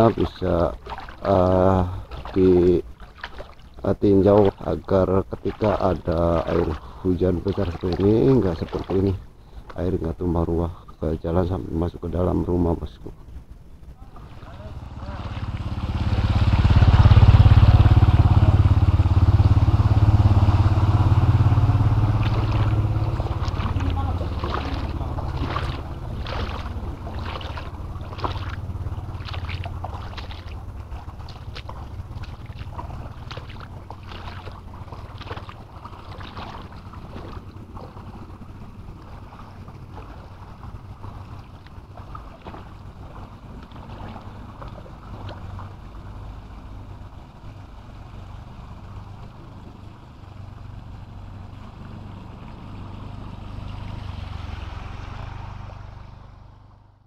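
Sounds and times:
short sharp splashes: 0:00.0 - 0:09.8, 0:13.9 - 0:46.6
motorcycle engine riding past: 0:14.2 - 0:57.0.

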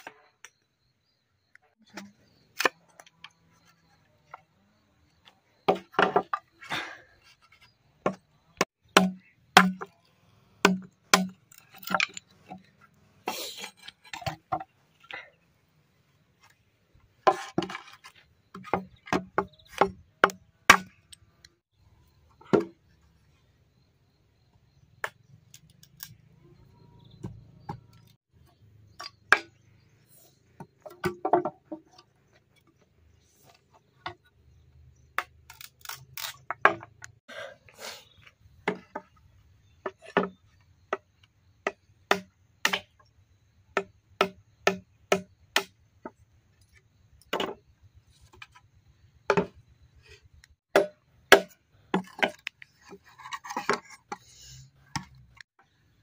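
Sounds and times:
machete chopping bamboo: 0:08.9 - 0:09.9, 0:10.6 - 0:12.1, 0:18.6 - 0:21.0, 0:29.0 - 0:29.5, 0:41.6 - 0:43.0, 0:43.8 - 0:45.8, 0:50.7 - 0:52.5.

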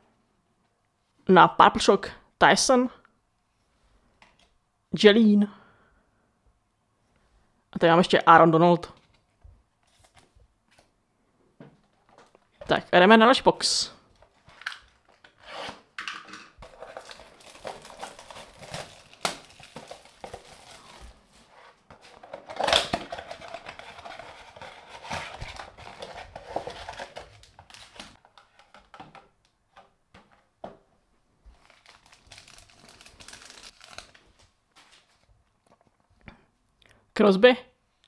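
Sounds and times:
plastic wrap crinkling and tearing: 0:16.6 - 0:21.3, 0:22.1 - 0:28.2, 0:31.5 - 0:34.6.

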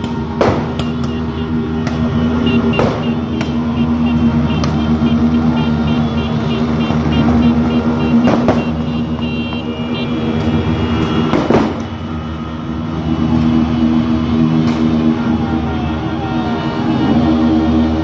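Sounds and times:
sharp bangs: 0:00.0 - 0:05.8, 0:06.4 - 0:12.2
motorcycles: 0:00.0 - 0:18.0
motorcycle horns blaring: 0:00.2 - 0:12.2.

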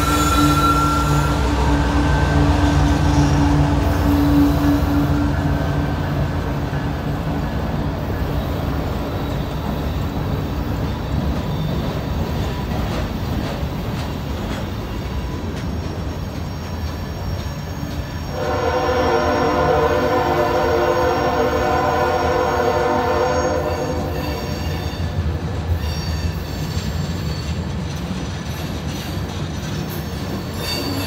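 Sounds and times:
train horn: 0:00.0 - 0:05.7, 0:18.2 - 0:25.2
freight train rumbling past: 0:00.0 - 0:31.0.

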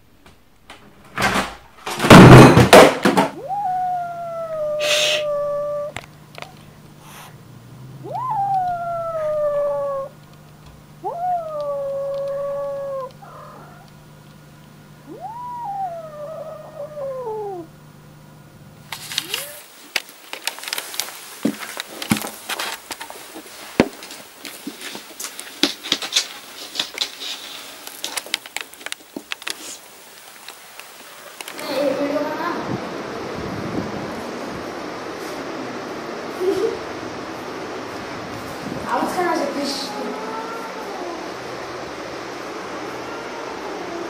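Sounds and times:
kitten meowing: 0:03.4 - 0:06.0, 0:07.9 - 0:10.2, 0:11.0 - 0:13.9, 0:15.0 - 0:17.7, 0:19.1 - 0:19.7, 0:39.6 - 0:41.2
sharp clicks and taps: 0:11.4 - 0:13.2.

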